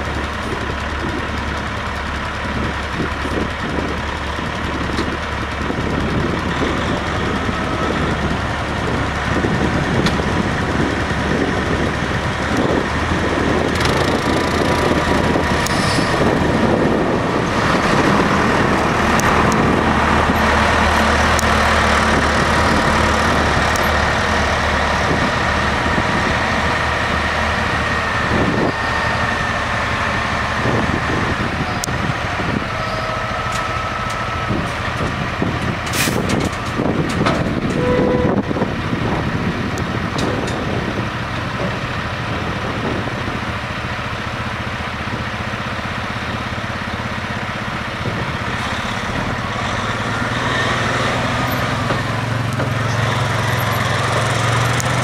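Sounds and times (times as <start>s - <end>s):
diesel truck engine running: 0.0s - 55.0s
hydraulic hoist whine: 12.4s - 39.3s
air hiss and clicks: 15.6s - 16.2s.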